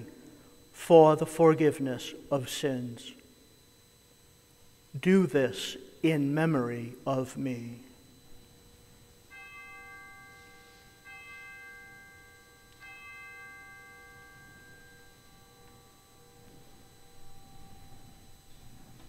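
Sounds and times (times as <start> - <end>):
altar bell ringing: 9.3 - 19.0.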